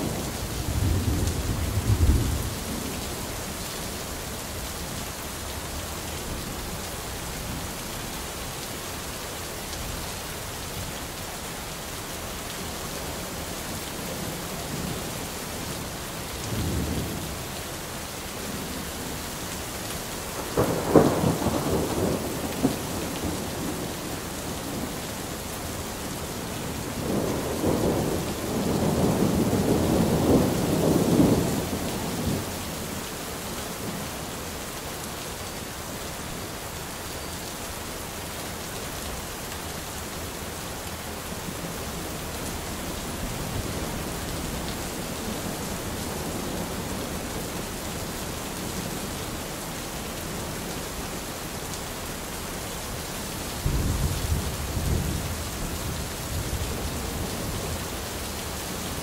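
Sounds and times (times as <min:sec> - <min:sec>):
rolling thunder: 0:00.0 - 0:02.8, 0:20.4 - 0:24.9, 0:53.6 - 0:57.3
steady rain: 0:00.0 - 0:59.0.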